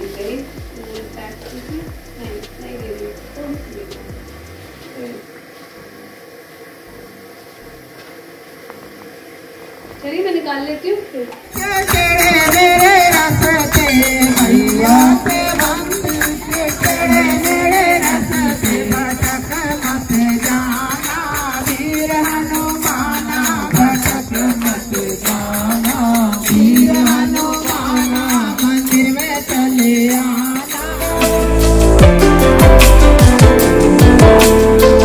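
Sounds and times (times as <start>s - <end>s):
jingling tambourine percussion: 0.0s - 4.6s, 11.5s - 35.0s
person singing a hymn: 11.6s - 32.8s.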